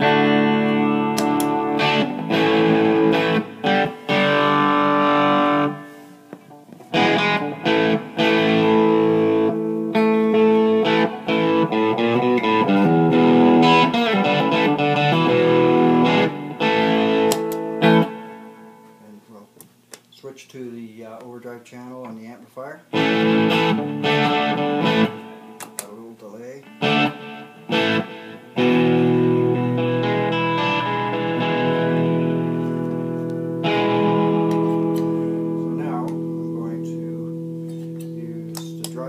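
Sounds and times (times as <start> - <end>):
distorted electric guitar chords: 0.0 - 19.1, 22.9 - 25.8, 26.6 - 39.0.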